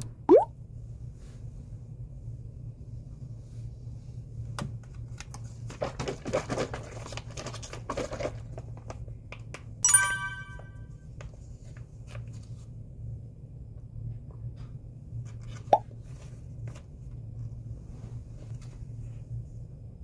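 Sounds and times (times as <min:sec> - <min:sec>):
low room hum: 0:00.0 - 0:20.0
bright ringing ding: 0:09.8 - 0:11.0.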